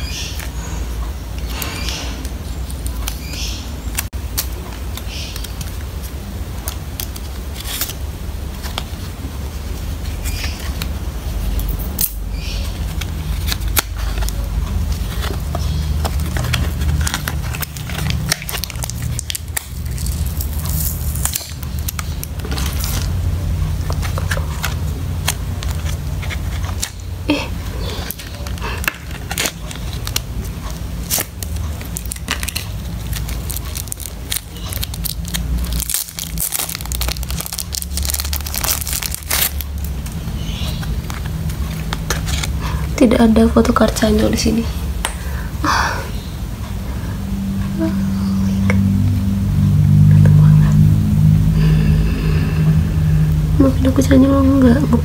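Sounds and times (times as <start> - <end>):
steady low hum: 0.0 - 55.0
cardboard and plastic crinkling: 12.6 - 43.0.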